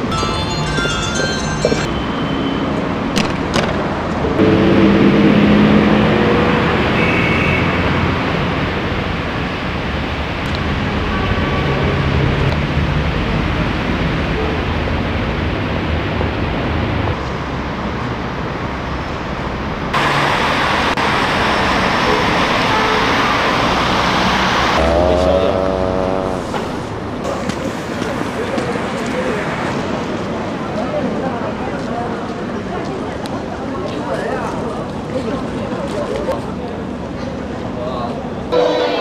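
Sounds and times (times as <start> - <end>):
city street traffic: 0.0 - 39.0.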